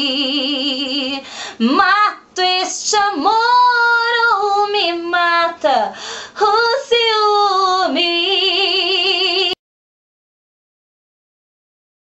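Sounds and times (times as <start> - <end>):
woman singing a slow ballad: 0.0 - 9.6.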